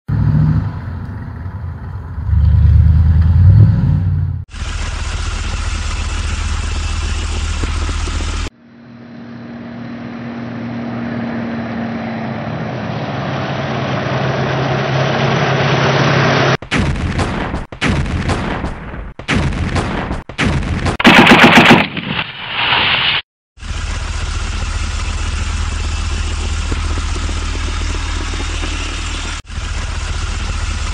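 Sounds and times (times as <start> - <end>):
engine rumble: 0.1 - 16.6, 23.6 - 30.9
second engine sound: 0.1 - 16.6, 23.6 - 30.9
machine-gun fire: 16.6 - 22.2.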